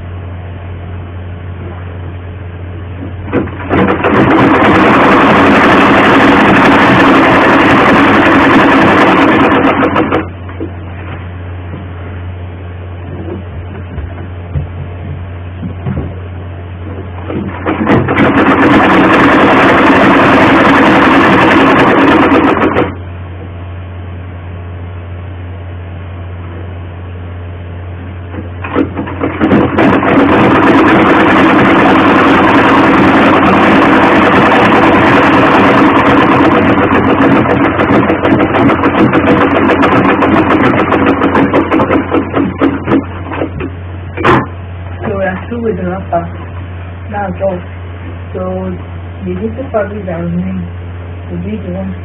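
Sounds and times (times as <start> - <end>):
sewing machine stitching: 3.3 - 10.4, 17.2 - 23.0, 28.6 - 44.5.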